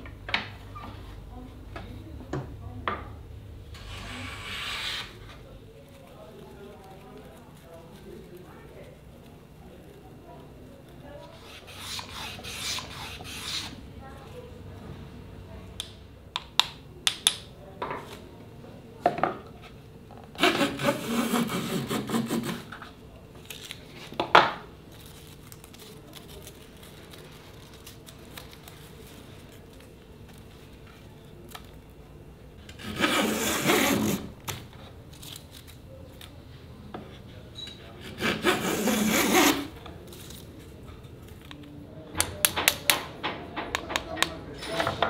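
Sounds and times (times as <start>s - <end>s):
hand plane cutting wood: 11.4s - 13.7s, 20.4s - 22.8s, 32.8s - 34.3s, 38.0s - 39.7s.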